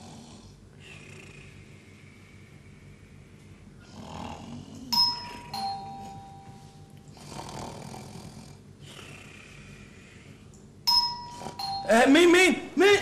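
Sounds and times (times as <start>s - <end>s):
man snoring: 0.0s - 1.6s, 3.8s - 4.9s, 7.1s - 9.8s
two-tone doorbell: 5.0s - 7.0s, 10.9s - 12.1s.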